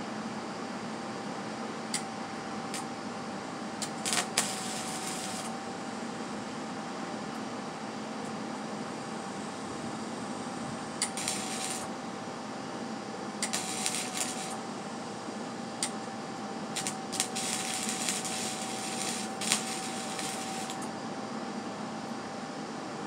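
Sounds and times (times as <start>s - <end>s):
steady hum: 0.0s - 23.0s
welding arc crackling and sizzling: 3.8s - 5.6s, 11.0s - 11.9s, 13.4s - 14.8s, 16.6s - 20.9s.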